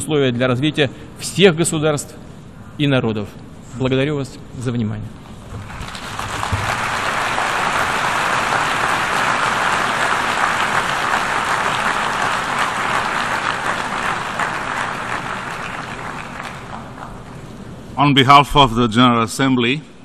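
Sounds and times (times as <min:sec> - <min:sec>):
audience applauding: 0:05.6 - 0:17.7.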